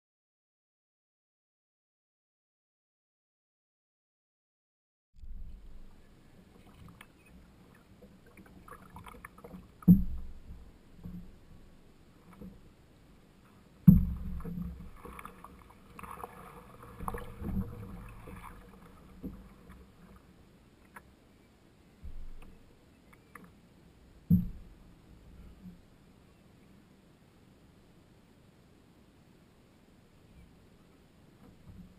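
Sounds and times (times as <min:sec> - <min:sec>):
water swishing and dripping: 0:05.2 - 0:21.1
paddle knocking against canoe: 0:08.0 - 0:11.4, 0:13.8 - 0:20.2.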